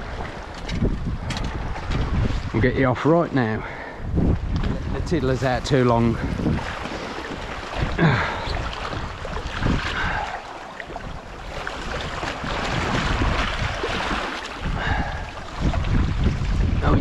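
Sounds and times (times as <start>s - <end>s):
wind buffeting the microphone: 0.0s - 17.0s
sea water splashing over rocks: 4.4s - 17.0s.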